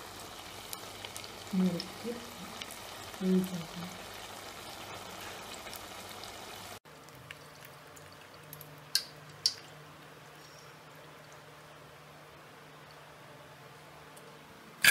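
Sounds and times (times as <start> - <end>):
deep-frying crackling sizzle: 0.0 - 13.2.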